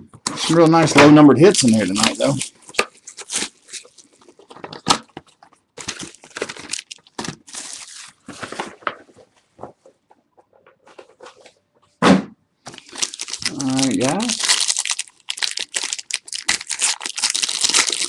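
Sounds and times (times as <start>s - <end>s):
plastic wrapping tearing and crinkling: 1.4s - 9.1s, 12.7s - 18.0s.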